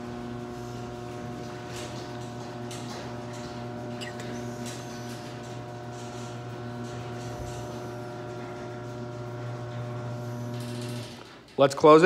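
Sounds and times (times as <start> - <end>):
garage door opener motor humming: 0.0 - 12.0.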